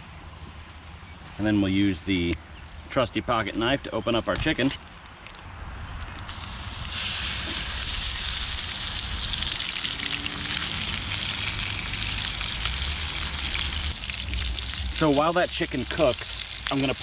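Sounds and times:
chicken sizzling in frying pan: 0:06.3 - 0:17.0.

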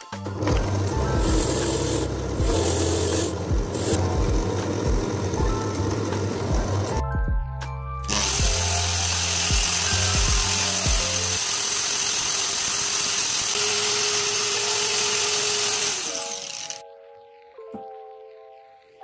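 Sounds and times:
sanding disc grinding metal bolt: 0:08.1 - 0:16.8.

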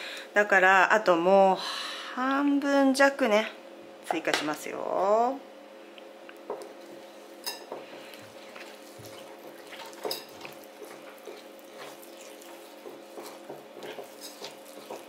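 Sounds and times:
faint steady hum: 0:00.0 - 0:15.0
whisk stirring thick icing: 0:06.9 - 0:15.0.

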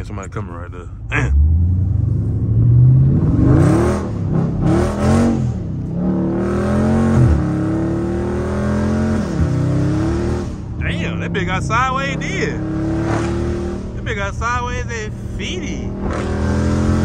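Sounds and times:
car engine accelerating hard: 0:01.2 - 0:17.0.

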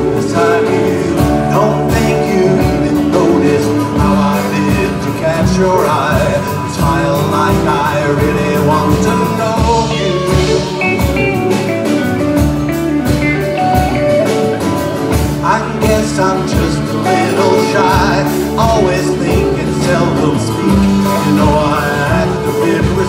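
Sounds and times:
acoustic rhythm guitar: 0:00.0 - 0:23.0
bass guitar: 0:00.0 - 0:23.0
drum kit: 0:00.0 - 0:23.0
electric guitar: 0:00.0 - 0:23.0
violin: 0:07.0 - 0:23.0.

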